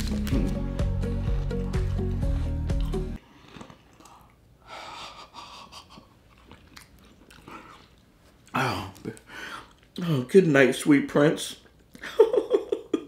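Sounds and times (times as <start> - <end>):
breathing: 3.2 - 5.7, 9.2 - 9.8
chewing with soft crunching: 5.8 - 10.0.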